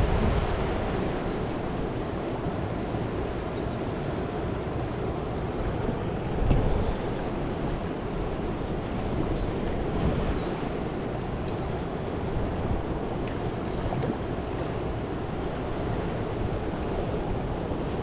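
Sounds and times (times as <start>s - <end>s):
wind buffeting microphone: 0.0s - 2.0s, 5.5s - 11.4s
river water rushing: 0.0s - 18.0s.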